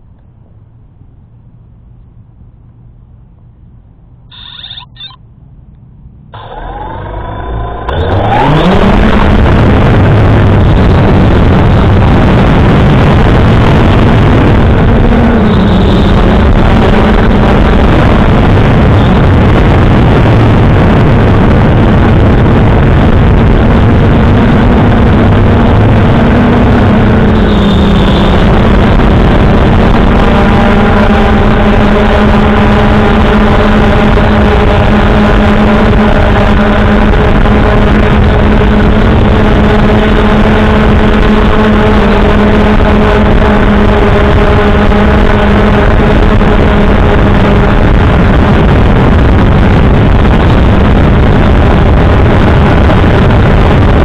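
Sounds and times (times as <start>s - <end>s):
drone motors buzzing: 4.3s - 5.2s, 6.3s - 53.3s
short high beeps: 4.3s - 5.2s.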